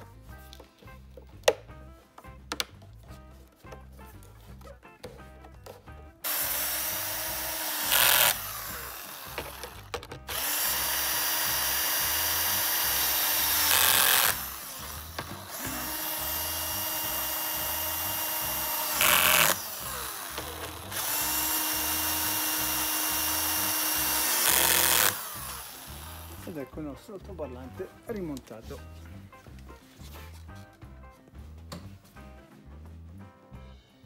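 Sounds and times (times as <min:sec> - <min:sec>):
cordless drill driving screws: 0:06.2 - 0:26.5.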